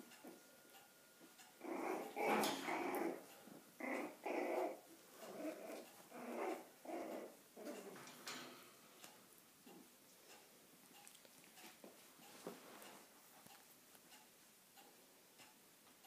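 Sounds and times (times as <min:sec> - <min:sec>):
puppies growling: 0:01.6 - 0:08.2.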